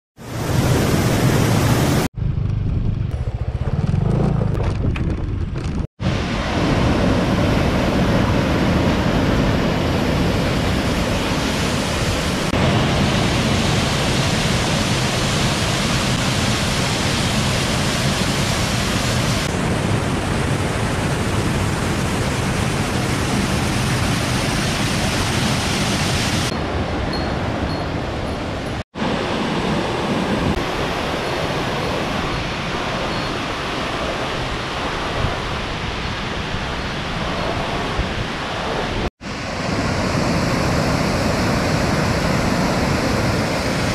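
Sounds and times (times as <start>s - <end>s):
waterfall rushing over boulders: 6.0s - 26.6s, 38.4s - 43.9s.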